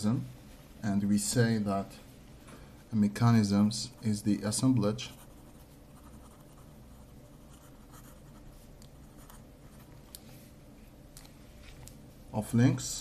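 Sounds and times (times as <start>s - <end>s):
pen scratching on paper: 5.1s - 9.9s.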